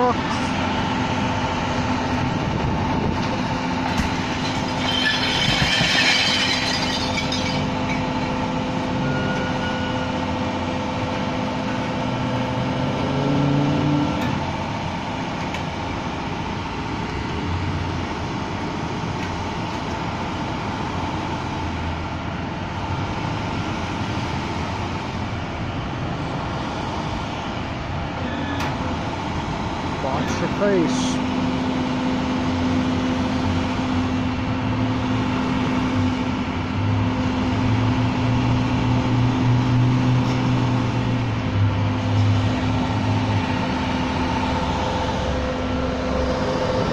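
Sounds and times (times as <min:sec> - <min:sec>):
garbage truck diesel engine: 0:00.0 - 0:46.9.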